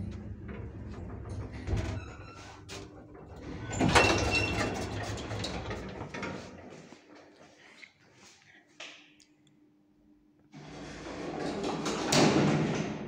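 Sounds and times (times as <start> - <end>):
low lift hum: 0.0 - 6.6
sliding doors rattling open: 0.0 - 6.6, 10.6 - 13.0.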